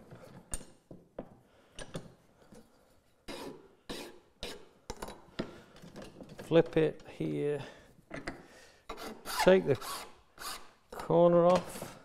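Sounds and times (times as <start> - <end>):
file rasping on steel: 3.3 - 4.7, 8.9 - 10.8.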